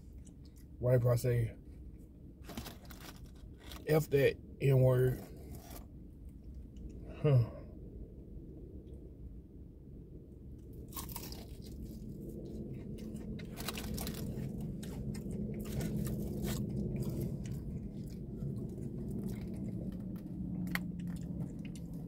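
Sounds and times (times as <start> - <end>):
low steady hum: 0.0 - 22.0
chewing crunchy food: 2.4 - 4.0, 10.6 - 22.0.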